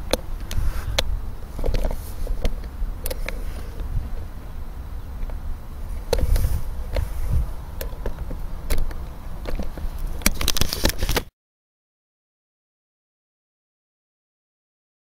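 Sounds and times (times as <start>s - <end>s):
wind buffeting microphone: 0.0s - 10.4s
sharp clicks and knocks: 7.8s - 11.3s.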